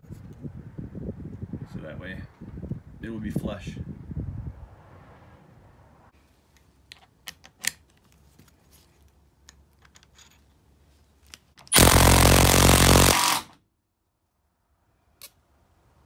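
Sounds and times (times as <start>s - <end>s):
impact driver hammering screw: 11.7s - 13.6s.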